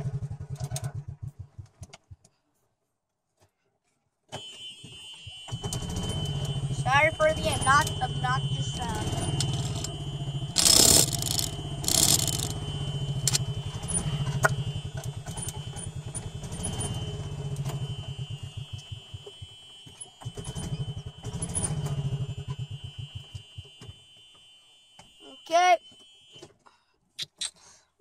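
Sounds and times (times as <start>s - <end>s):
golf cart engine putter: 9.1s - 12.6s, 13.2s - 15.6s.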